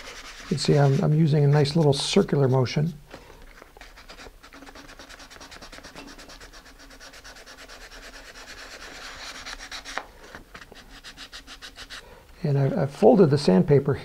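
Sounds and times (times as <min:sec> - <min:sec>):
sandpaper rasping: 0:00.0 - 0:02.3, 0:03.8 - 0:10.0, 0:10.7 - 0:12.0.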